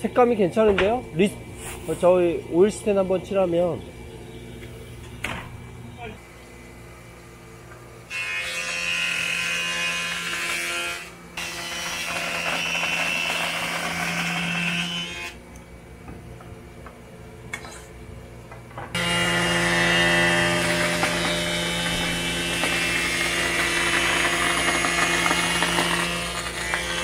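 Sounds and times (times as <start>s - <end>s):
motor hum: 0.0s - 27.0s
jointer-planer cutting a board: 8.1s - 15.4s, 19.0s - 27.0s.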